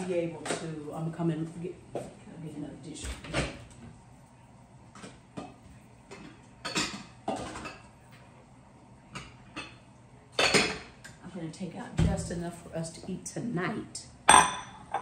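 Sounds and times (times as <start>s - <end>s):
dishes knocking and clinking: 3.0s - 3.8s, 4.9s - 8.2s, 9.1s - 9.8s, 10.4s - 11.2s, 14.2s - 15.0s
dishes clattering: 4.9s - 8.0s, 10.4s - 11.1s, 14.2s - 15.0s.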